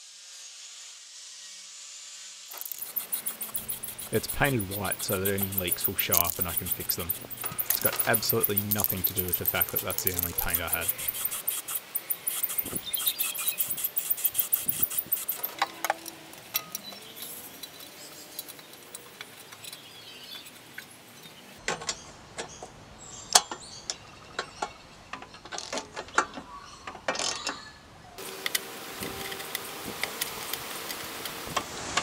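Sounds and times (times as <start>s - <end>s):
spray can hissing: 2.5s - 15.5s
ratchet wrench clicking: 2.6s - 18.9s
metal clicks and clinks: 2.6s - 21.4s.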